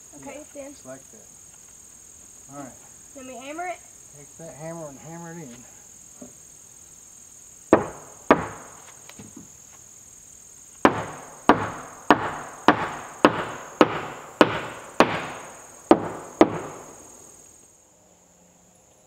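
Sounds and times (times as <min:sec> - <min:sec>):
hammer driving nails into wood: 0:07.7 - 0:08.7, 0:10.8 - 0:16.9.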